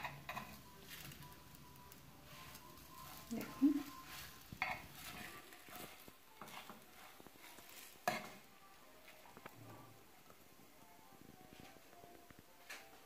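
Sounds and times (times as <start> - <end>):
spoon scraping frying pan: 0.0 - 10.0.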